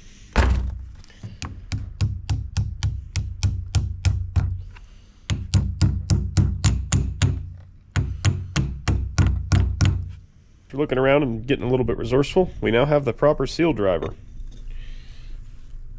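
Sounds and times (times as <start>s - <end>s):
hammer tapping on metal: 1.2s - 4.6s, 5.3s - 10.1s.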